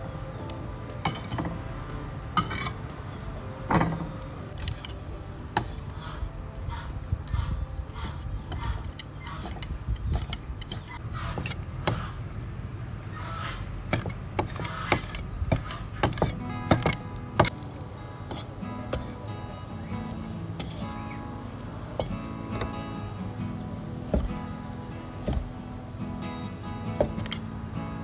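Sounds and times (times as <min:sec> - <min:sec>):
cleaver chopping on wooden block: 0:08.0 - 0:12.2, 0:13.9 - 0:17.5, 0:24.1 - 0:24.4, 0:25.2 - 0:25.5.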